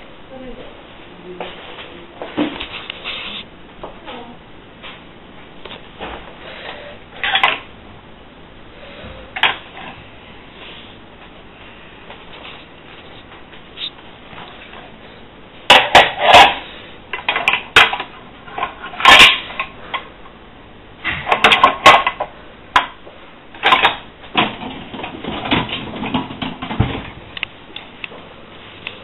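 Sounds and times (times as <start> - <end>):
crockery and dishwasher racks clattering: 23.6 - 27.2.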